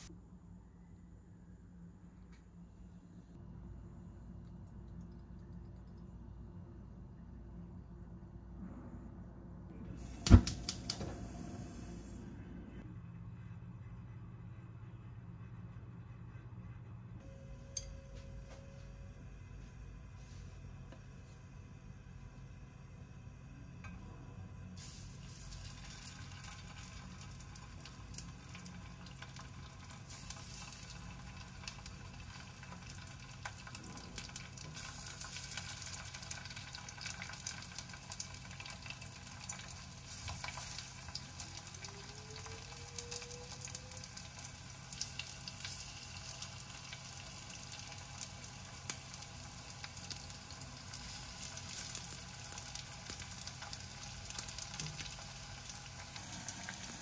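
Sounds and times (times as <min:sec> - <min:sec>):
fish sizzling in hot oil: 0:24.8 - 0:57.0.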